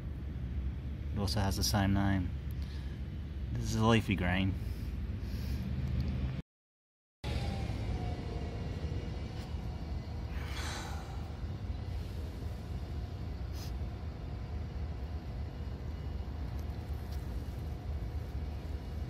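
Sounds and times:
low outdoor rumble: 0.0s - 6.4s, 7.2s - 19.0s
breathy whoosh: 10.3s - 12.4s.

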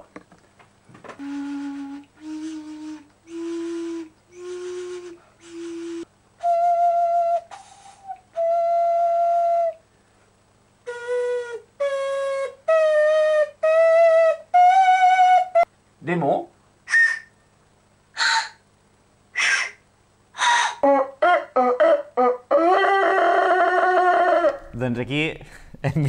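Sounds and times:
breathy vegetable flute notes: 1.1s - 9.9s, 10.8s - 15.7s, 16.9s - 17.4s, 18.2s - 18.6s, 19.3s - 19.8s, 20.4s - 24.7s.

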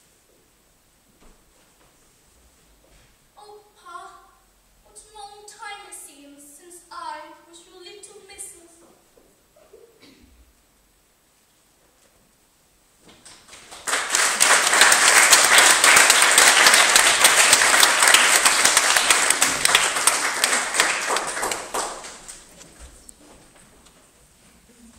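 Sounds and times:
audience applauding: 13.2s - 22.6s.

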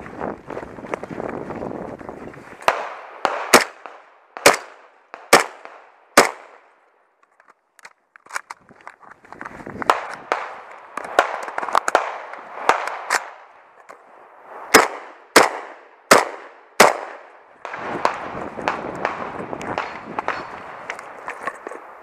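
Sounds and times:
footsteps through vegetation: 0.0s - 2.7s
rifle shots: 2.6s - 6.6s, 9.9s - 13.5s, 14.6s - 21.3s.

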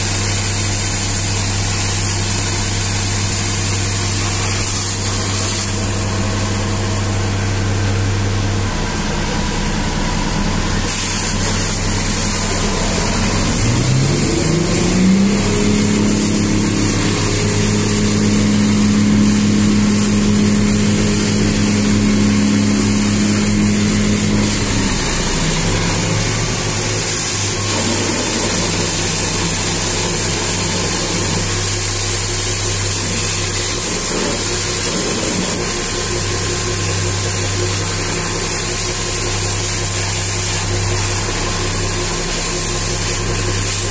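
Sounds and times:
engine running: 0.0s - 43.9s
hose water jet hissing: 0.0s - 43.9s.

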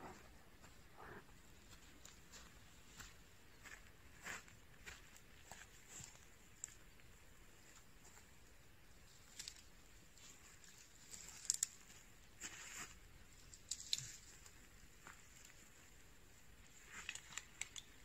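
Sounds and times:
crunching footsteps: 0.0s - 7.0s, 9.0s - 15.8s
twigs crackling and snapping: 5.9s - 6.9s, 9.1s - 15.7s, 16.7s - 18.0s.

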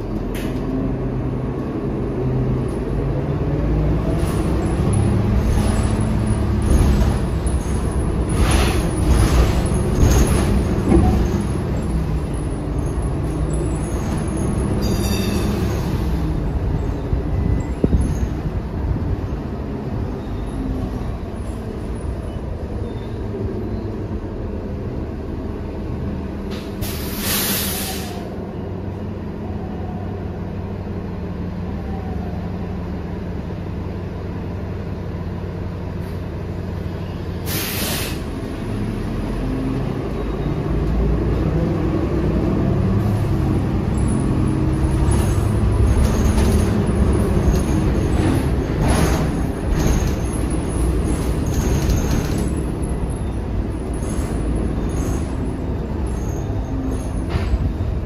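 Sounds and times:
bus engine drone: 0.0s - 58.0s
compressed air hisses: 26.8s - 28.2s, 37.5s - 38.3s.

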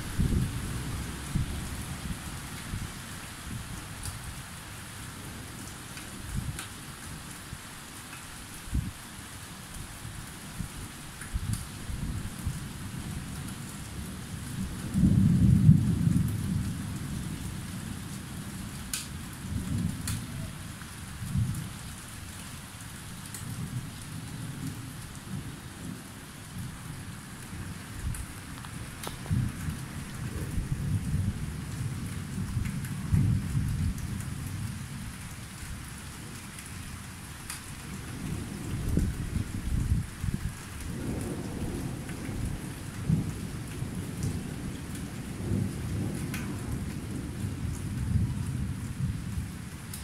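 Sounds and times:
rolling thunder: 0.0s - 2.8s, 14.5s - 17.4s, 26.6s - 35.1s, 38.1s - 49.6s
raindrops tapping close by: 0.0s - 50.0s
steady rain falling: 0.0s - 50.0s.

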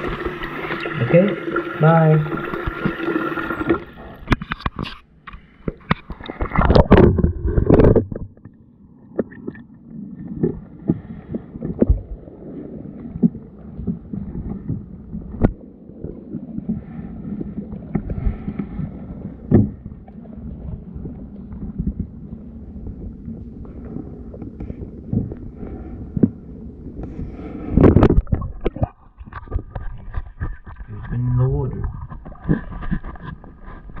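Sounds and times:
rush of water: 0.0s - 4.9s
underwater water sloshing: 0.0s - 34.0s.

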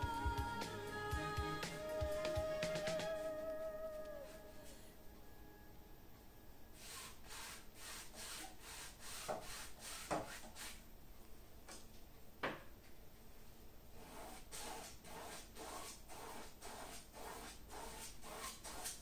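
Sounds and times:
paintbrush scrubbing canvas: 6.8s - 10.8s, 14.0s - 19.0s.

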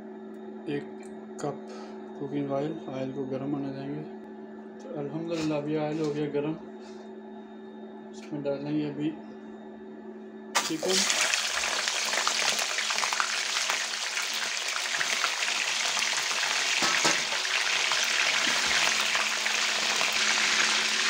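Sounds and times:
chicken sizzling in hot oil: 10.6s - 21.0s.

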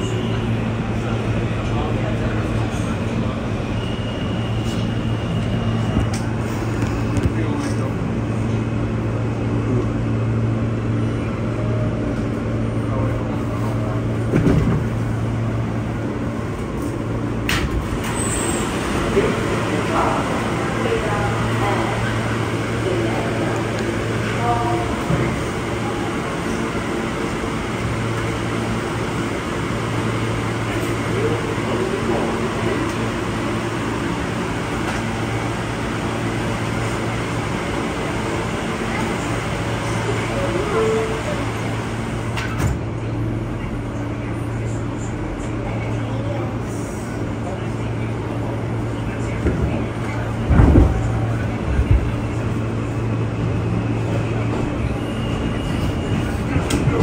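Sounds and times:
subway car equipment hum: 0.0s - 57.0s.

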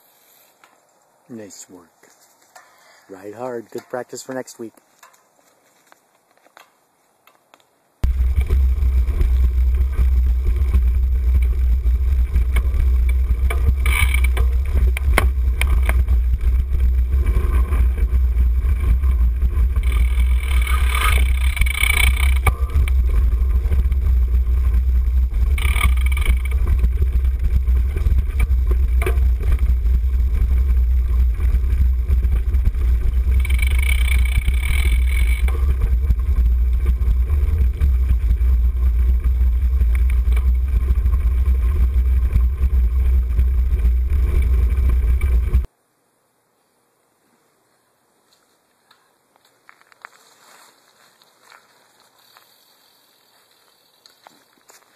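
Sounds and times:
tyres crunching over leaves and gravel: 0.8s - 45.6s, 48.3s - 54.9s
wind buffeting and frame vibration: 8.0s - 45.7s.

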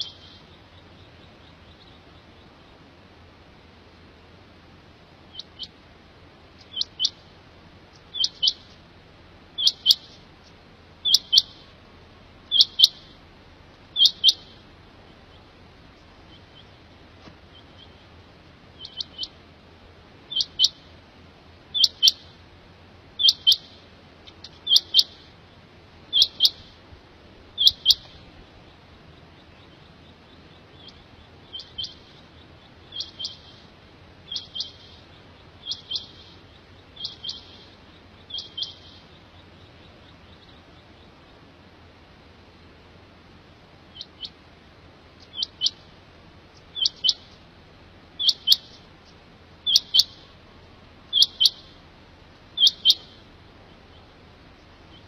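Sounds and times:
quail calling: 0.0s - 2.8s, 5.3s - 5.8s, 6.6s - 7.3s, 7.9s - 8.8s, 9.6s - 11.8s, 12.5s - 13.2s, 13.9s - 19.4s, 20.3s - 20.9s, 21.7s - 22.4s, 23.2s - 25.4s, 26.1s - 26.8s, 27.5s - 41.4s, 43.9s - 44.4s, 45.2s - 47.4s, 48.2s - 50.4s, 51.1s - 51.8s, 52.5s - 55.0s.

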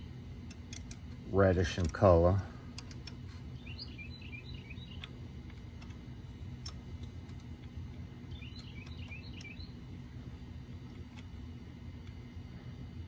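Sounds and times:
low background rumble: 0.0s - 13.0s
metallic wrench clicks: 0.5s - 1.0s, 2.7s - 3.2s
bird twittering: 3.5s - 5.2s, 8.3s - 9.8s.

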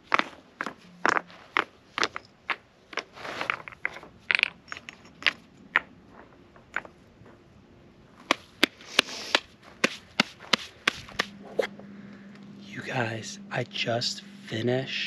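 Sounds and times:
rocks scraping: 0.0s - 6.9s
rocks clacking together: 0.1s - 7.0s.

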